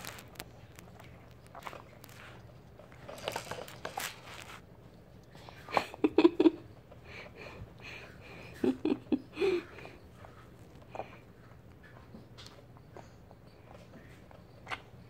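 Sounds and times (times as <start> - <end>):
baby sucking and smacking: 0.0 - 4.6.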